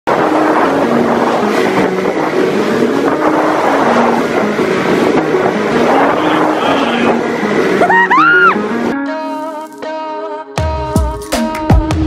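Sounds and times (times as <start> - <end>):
motorboat engine running: 0.1 - 9.0
waves splashing: 0.1 - 9.6
wind: 0.1 - 12.0
intro music with stepping melody: 8.5 - 12.0.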